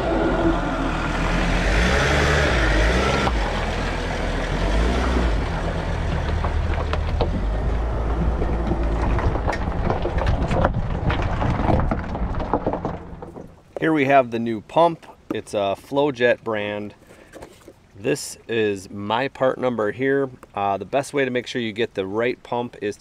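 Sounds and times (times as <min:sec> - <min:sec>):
van engine rumbling: 0:00.0 - 0:15.8
stones crackling under tyres: 0:02.7 - 0:14.2.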